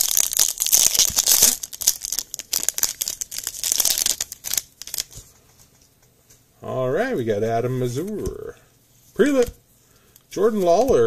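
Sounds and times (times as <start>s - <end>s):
card pack wrapper tearing and crinkling: 0.0s - 5.2s.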